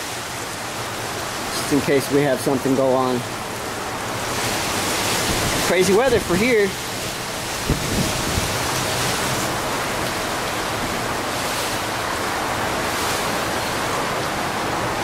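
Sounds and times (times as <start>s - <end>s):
strong wind on microphone: 5.2s - 6.4s, 7.2s - 11.2s.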